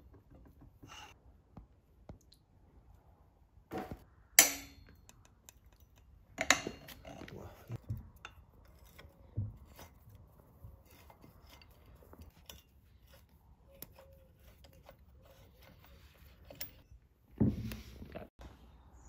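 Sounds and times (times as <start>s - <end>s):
metallic clicks and scrapes of tool: 10.8s - 16.8s.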